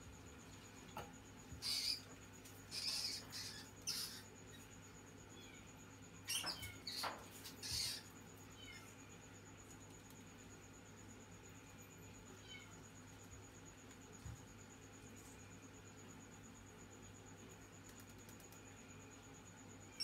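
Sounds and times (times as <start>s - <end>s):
mouse squeaking: 1.5s - 9.0s.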